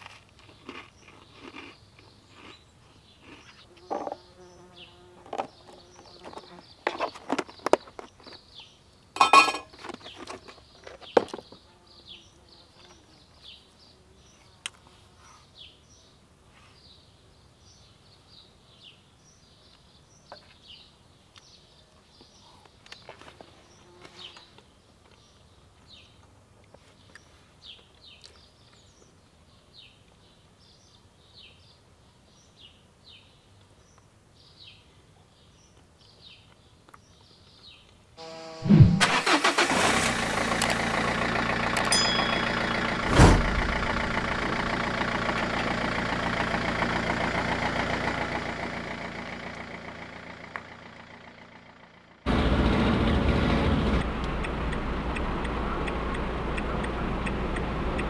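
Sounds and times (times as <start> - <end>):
knocks and clatters of handling: 6.2 - 8.5, 9.2 - 11.6
small bird chirping: 41.8 - 42.9.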